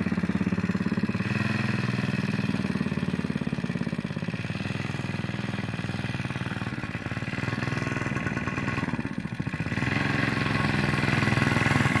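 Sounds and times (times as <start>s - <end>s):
mini bike engine running: 0.0s - 12.0s.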